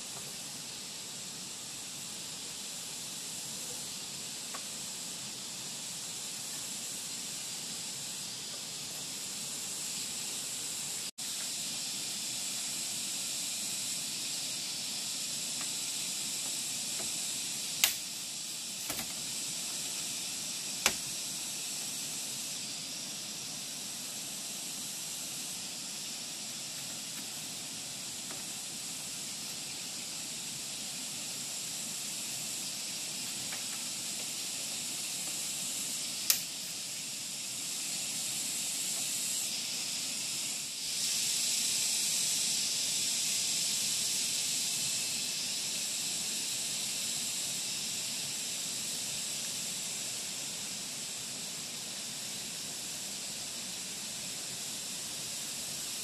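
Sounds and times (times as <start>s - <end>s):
insect chorus hissing: 0.0s - 56.0s
bamboo knocking: 18.8s - 19.2s.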